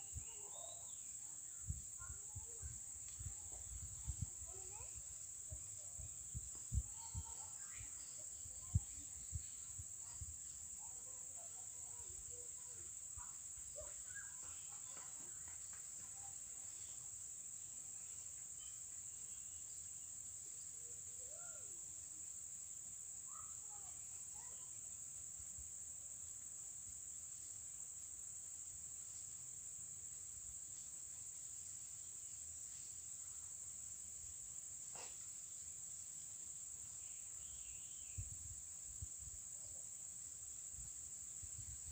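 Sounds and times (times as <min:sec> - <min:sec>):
faint bird calls: 0:00.0 - 0:02.6, 0:11.4 - 0:15.5.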